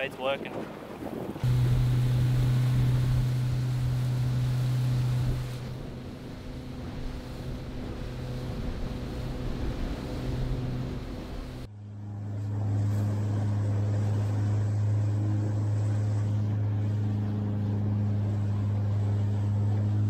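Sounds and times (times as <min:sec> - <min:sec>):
wind noise: 0:00.0 - 0:11.7
outboard engine running: 0:00.2 - 0:20.0
water rushing: 0:01.4 - 0:11.7.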